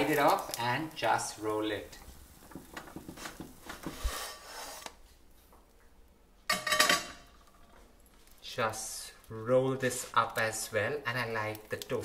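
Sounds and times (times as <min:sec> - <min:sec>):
plastic spatula scraping a pan: 0:02.9 - 0:05.0.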